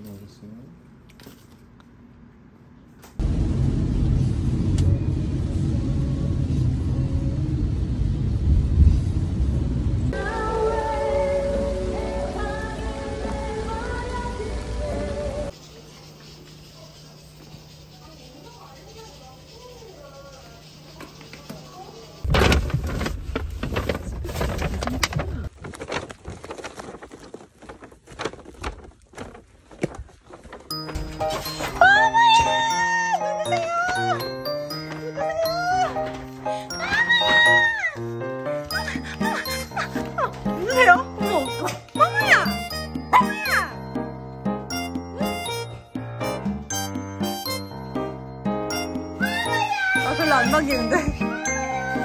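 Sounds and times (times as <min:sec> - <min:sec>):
low rumbling noise: 0:03.2 - 0:15.5
music: 0:10.2 - 0:15.6, 0:30.7 - 0:52.0.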